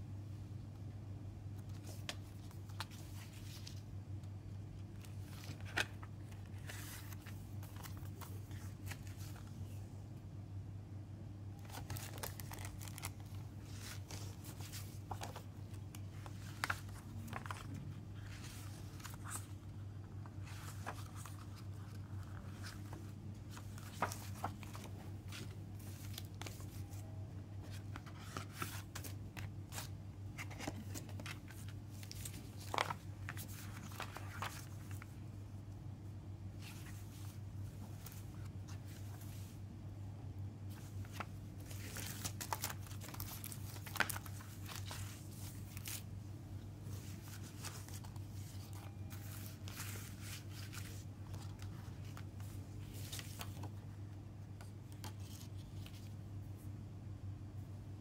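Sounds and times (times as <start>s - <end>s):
paper pages turning: 4.9s - 9.4s, 11.6s - 35.1s, 40.7s - 46.1s, 46.9s - 53.8s
cardboard sleeve shuffling: 20.2s - 35.1s, 46.8s - 53.8s.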